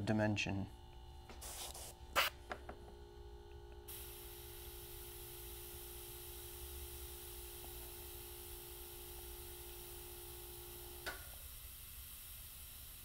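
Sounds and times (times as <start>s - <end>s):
faint steady hum: 0.0s - 13.0s
airbrush air hiss: 1.3s - 2.3s, 3.9s - 13.0s.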